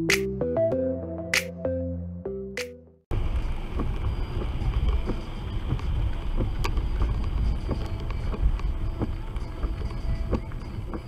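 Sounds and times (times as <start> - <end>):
engine and wet road rumble: 3.1 - 11.0.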